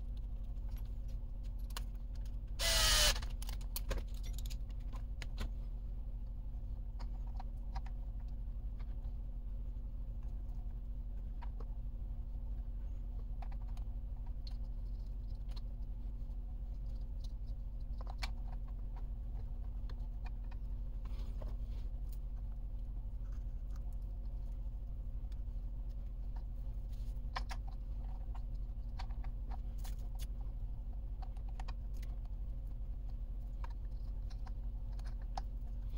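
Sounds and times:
steady low hum: 0.0 - 35.9
hands clicking plastic parts: 27.2 - 35.9.

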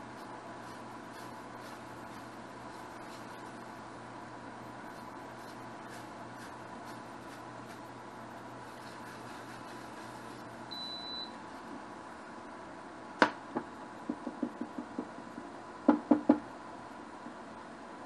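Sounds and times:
cooktop beep: 10.7 - 11.4.

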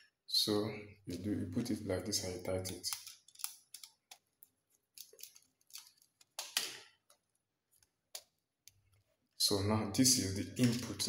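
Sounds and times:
screwdriver clicks and scrapes: 2.6 - 4.2.

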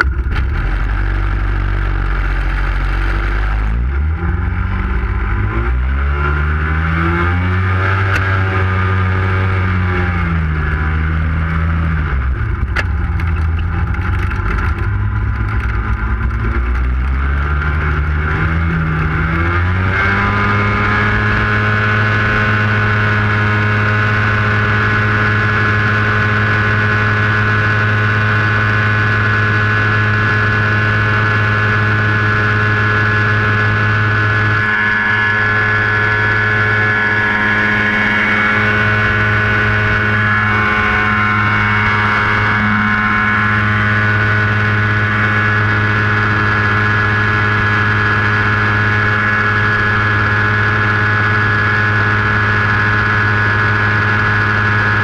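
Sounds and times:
propeller engine revving: 0.0 - 55.0.

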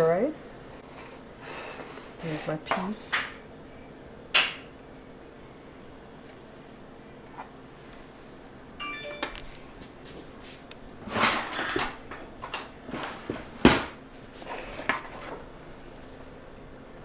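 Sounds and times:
tableware clinking: 0.8 - 3.4.

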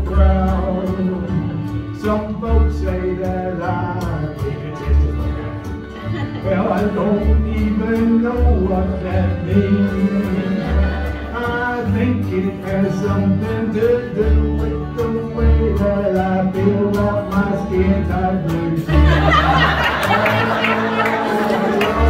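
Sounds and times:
accordion: 0.0 - 22.0
plucked upright bass: 0.0 - 22.0
strummed acoustic guitars: 0.0 - 22.0.

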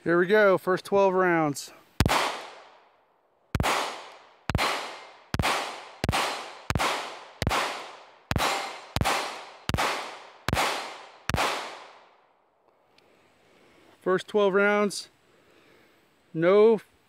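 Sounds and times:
pistol shots echoing: 2.0 - 2.8, 3.5 - 12.2.

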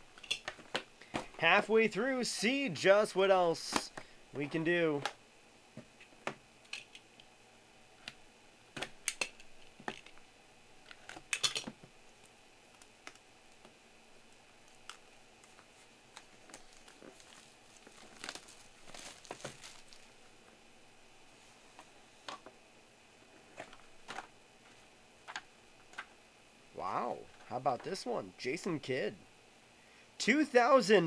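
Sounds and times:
wrapping crinkling: 14.6 - 20.5.

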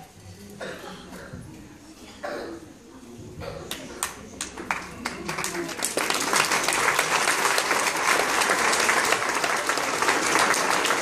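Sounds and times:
crowd applauding: 3.7 - 11.0.

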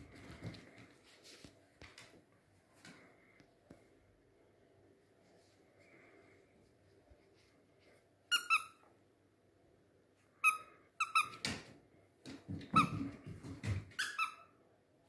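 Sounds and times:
dog toy squeaking: 8.3 - 8.8, 10.4 - 11.4, 14.0 - 14.5.

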